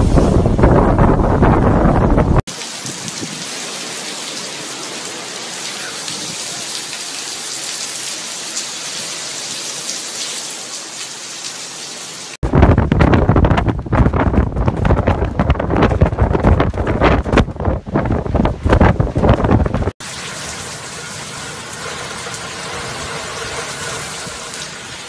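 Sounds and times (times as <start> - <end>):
wind buffeting microphone: 0.0 - 3.5, 12.4 - 20.0
heavy rain pouring: 0.0 - 25.0.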